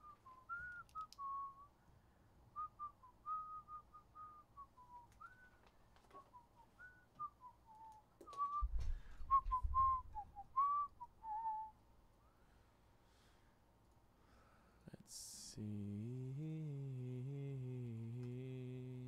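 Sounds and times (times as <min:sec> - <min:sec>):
person whistling a tune: 0:00.0 - 0:01.7, 0:02.6 - 0:05.6, 0:06.2 - 0:11.8.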